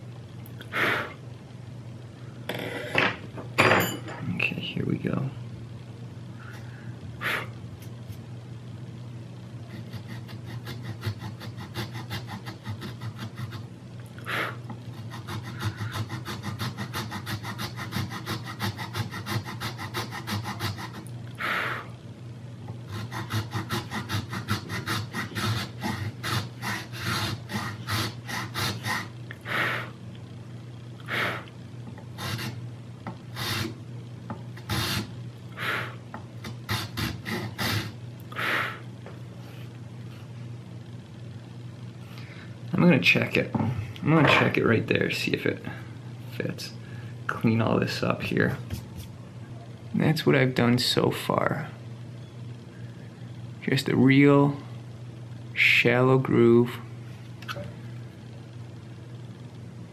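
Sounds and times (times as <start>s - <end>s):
file rasping on metal: 9.7s - 13.6s, 15.0s - 21.1s, 22.9s - 29.1s, 36.4s - 37.9s.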